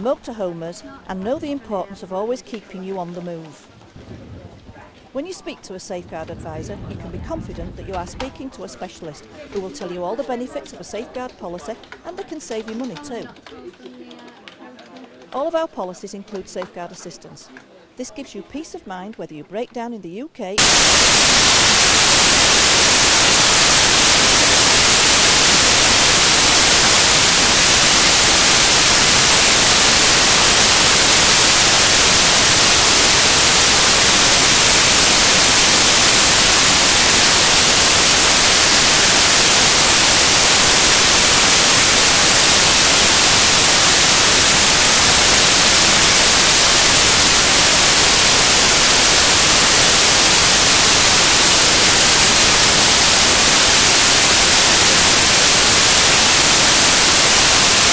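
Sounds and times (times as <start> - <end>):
static hiss: 20.6 - 57.9.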